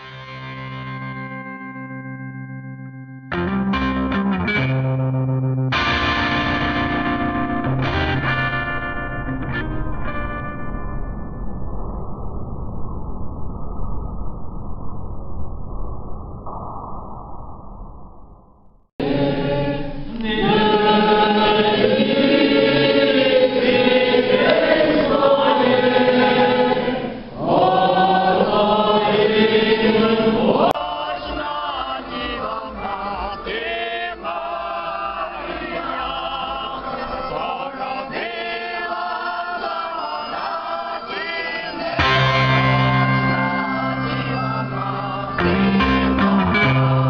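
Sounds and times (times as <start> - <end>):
choir singing: 19.0 - 47.0
group singing: 19.0 - 47.0.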